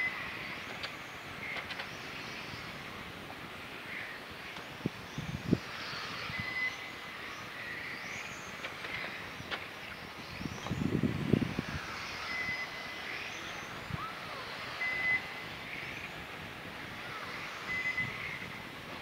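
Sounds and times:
radio-controlled cars whining: 3.9s - 19.0s.

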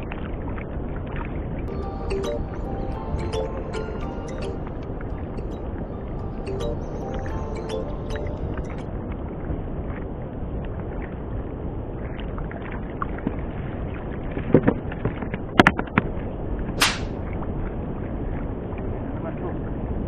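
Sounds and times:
sea noise: 0.0s - 14.5s
wind: 0.0s - 20.0s
fishing line swishing overhead: 16.8s - 17.2s.

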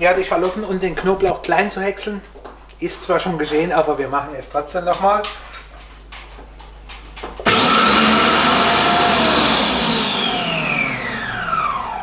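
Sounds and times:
food processor motor whirring: 7.4s - 12.0s.

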